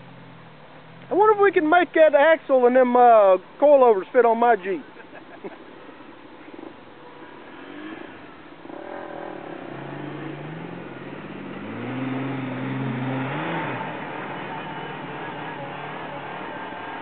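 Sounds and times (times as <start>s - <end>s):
car engine revving under load: 6.4s - 17.0s.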